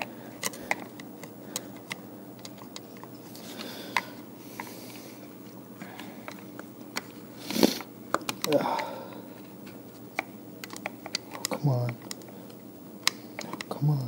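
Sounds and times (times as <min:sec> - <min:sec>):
faint steady hum: 0:00.0 - 0:14.0
metal picks clicking on plastic: 0:10.2 - 0:12.3, 0:13.0 - 0:13.8.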